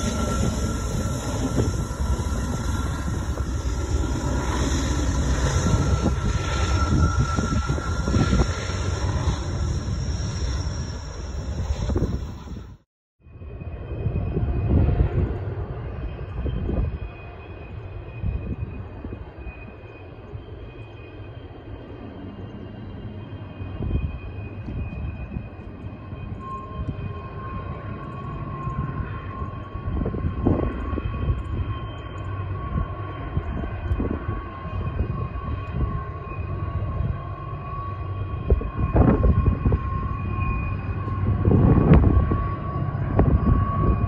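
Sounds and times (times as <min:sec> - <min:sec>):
wheel squeal: 0:00.0 - 0:12.8.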